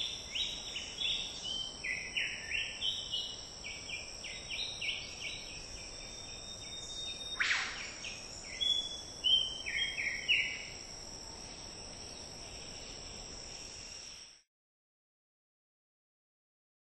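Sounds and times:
high-pitched insect chorus: 0.0s - 14.4s
short whistled notes: 7.4s - 8.0s.

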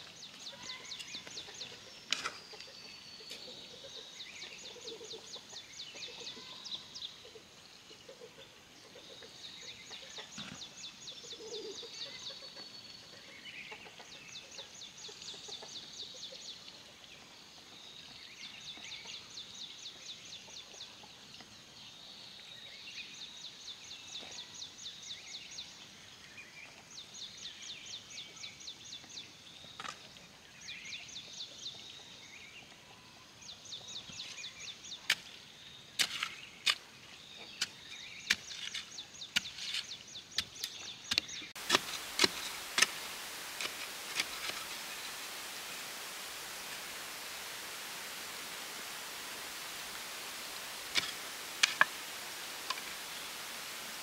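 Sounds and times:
hoe striking stony soil: 36.0s - 36.8s, 37.6s - 45.0s, 50.8s - 52.0s.

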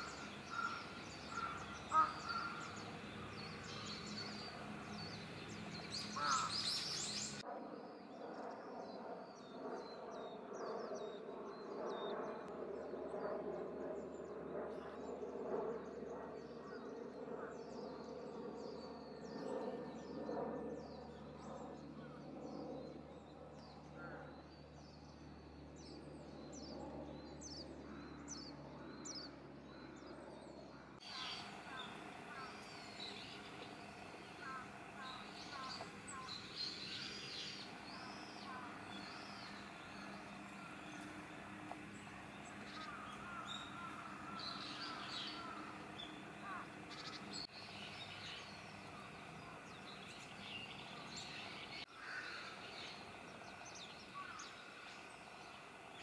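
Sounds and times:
harsh bird calling: 0.0s - 4.6s, 5.9s - 7.4s, 31.0s - 47.5s.

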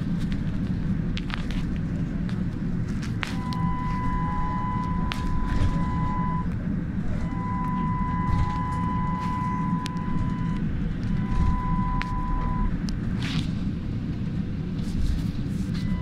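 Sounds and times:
trolleybus rumble: 0.0s - 16.0s.

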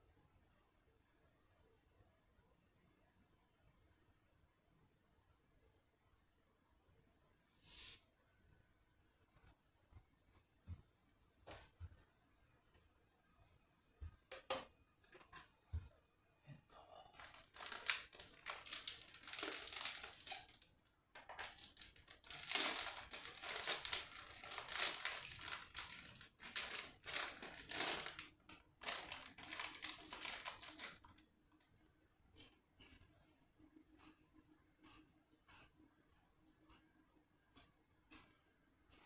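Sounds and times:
packaging crinkling: 17.2s - 20.7s, 21.3s - 31.2s.

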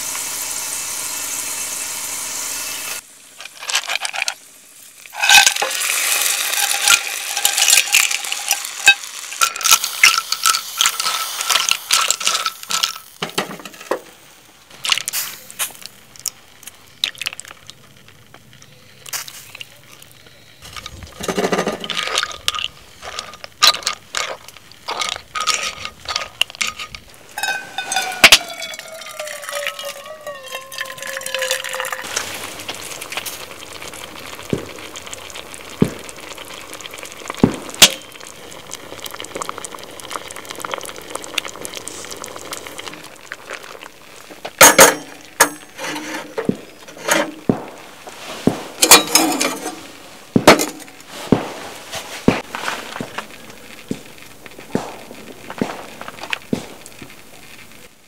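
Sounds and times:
sauce simmering in frying pan: 0.0s - 13.3s, 14.2s - 21.1s, 22.0s - 45.8s, 49.8s - 58.0s
tongs clinking on shells: 21.4s - 32.0s.

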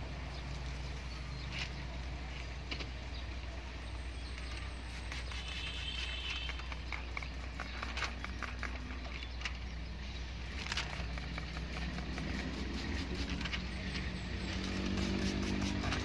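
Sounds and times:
steady low hum: 4.7s - 16.0s
spray bottle squirting: 4.8s - 8.8s, 10.8s - 13.6s, 14.6s - 16.0s.

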